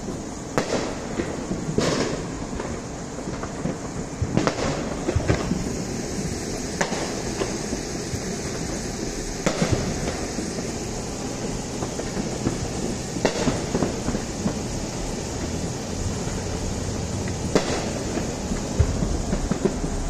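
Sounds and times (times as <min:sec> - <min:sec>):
distant fireworks bangs: 0:00.0 - 0:20.0
fireworks pops and crackles: 0:00.0 - 0:20.0
steady rumbling background: 0:04.9 - 0:20.0.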